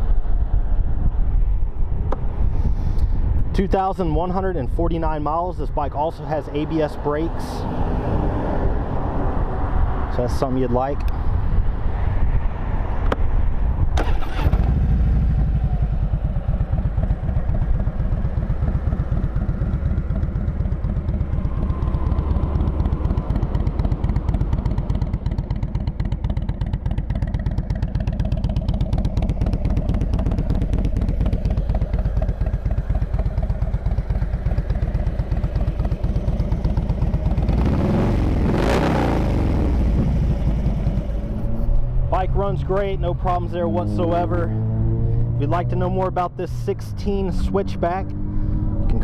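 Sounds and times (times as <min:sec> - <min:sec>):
motorcycle engine idling: 0:14.0 - 0:38.4, 0:39.2 - 0:41.6.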